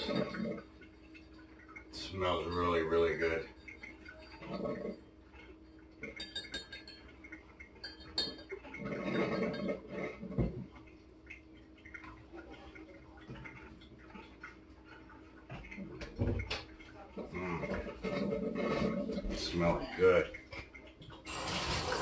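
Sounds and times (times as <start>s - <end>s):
stirring stick clinking in glass: 5.6s - 7.2s, 7.8s - 9.8s.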